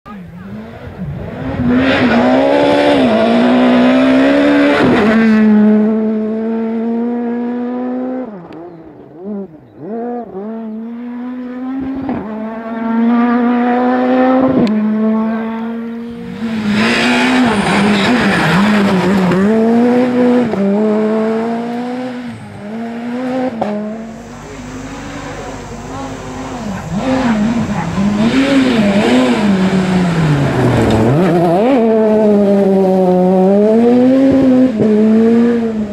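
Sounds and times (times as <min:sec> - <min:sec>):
rally car engine revving: 0:00.1 - 0:35.9
gravel spray and tyre noise: 0:14.4 - 0:35.9.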